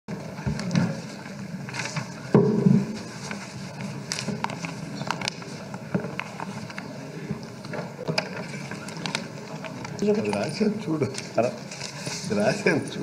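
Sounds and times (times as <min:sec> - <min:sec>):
paper rustling: 0:00.6 - 0:02.3, 0:02.9 - 0:06.9, 0:08.2 - 0:12.8.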